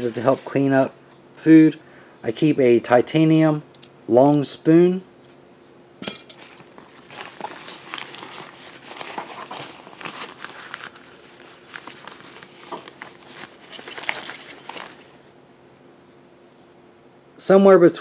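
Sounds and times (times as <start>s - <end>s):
stuff sack rustling: 0.0s - 0.8s, 6.3s - 15.2s.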